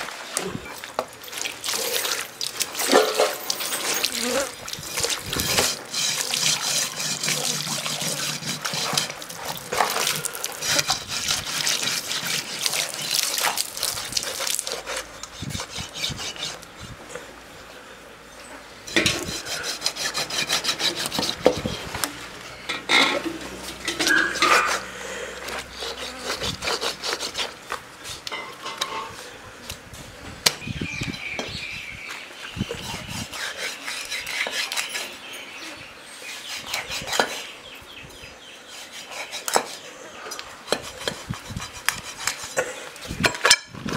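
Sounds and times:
scraping and rubbing strokes: 0:01.7 - 0:17.0, 0:18.9 - 0:22.3, 0:22.9 - 0:29.2, 0:32.7 - 0:35.2, 0:36.1 - 0:37.6, 0:38.6 - 0:43.9.

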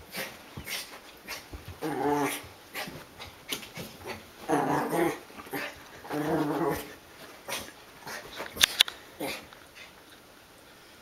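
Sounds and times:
small dog growling playfully: 0:01.8 - 0:03.0, 0:04.0 - 0:08.3.

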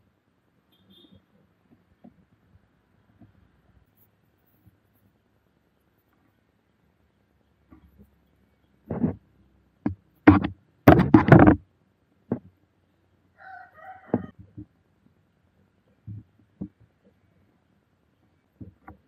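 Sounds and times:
plastic parts clicking and knocking: 0:09.8 - 0:11.7.

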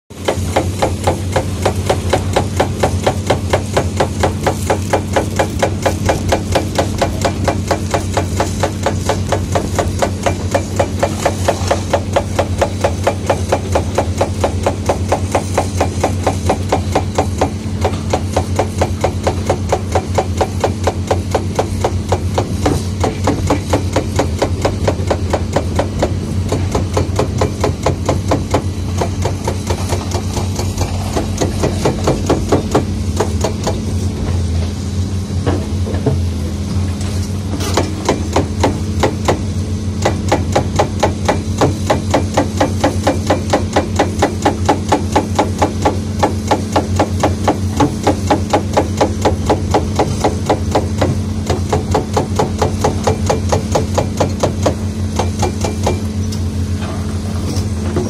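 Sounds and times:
diesel engine knocking: 0:37.8 - 0:56.2.

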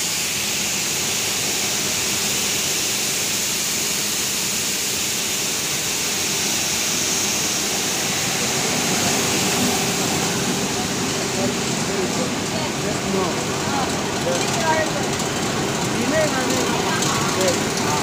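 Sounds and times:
wire line rushing hiss: 0:00.0 - 0:13.2.

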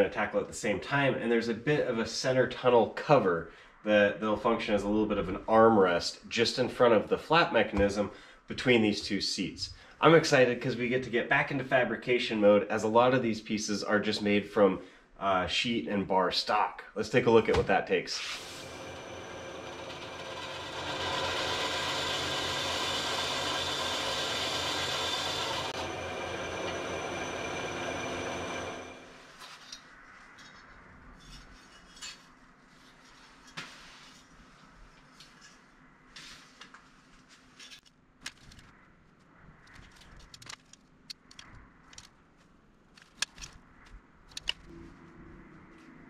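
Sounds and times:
power tool rasping on metal: 0:18.4 - 0:28.9
steady machine hum: 0:18.4 - 0:29.3.

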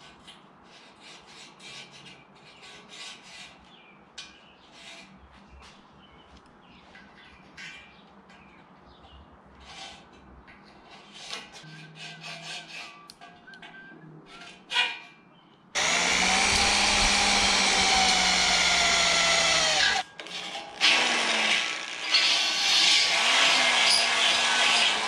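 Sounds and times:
electric drill boring into metal: 0:15.8 - 0:20.0, 0:20.7 - 0:25.0.

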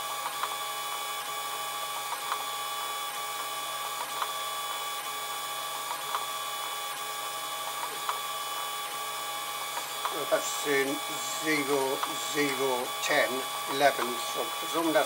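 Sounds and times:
stepper motors whining: 0:07.8 - 0:15.0.

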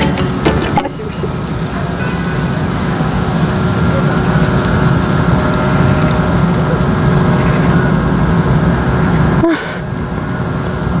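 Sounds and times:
low rumbling outdoor background noise: 0:00.0 - 0:11.0.

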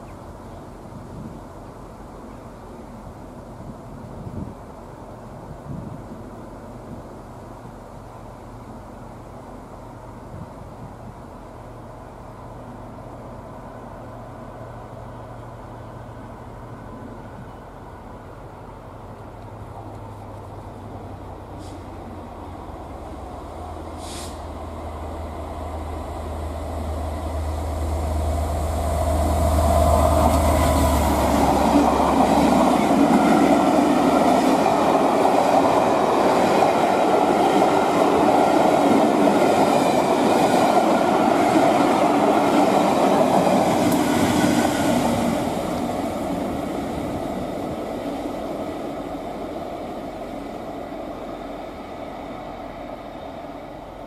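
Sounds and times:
locomotive engine drone: 0:00.0 - 0:54.0
train wheels clattering on rails: 0:28.1 - 0:48.5.

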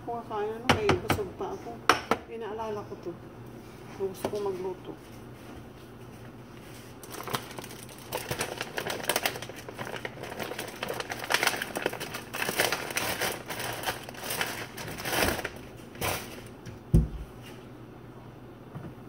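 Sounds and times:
plastic bag crinkling: 0:07.0 - 0:16.6.

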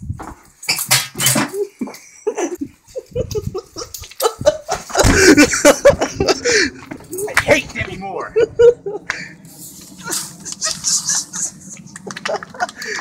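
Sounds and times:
loud laughter: 0:01.5 - 0:06.8, 0:08.2 - 0:09.3, 0:10.0 - 0:13.0
handling and movement noise: 0:02.9 - 0:13.0.

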